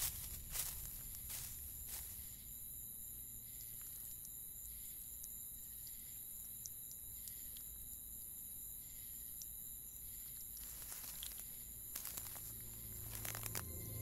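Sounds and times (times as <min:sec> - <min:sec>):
high insect chorus: 0:00.0 - 0:14.0
low rumble: 0:12.2 - 0:14.0.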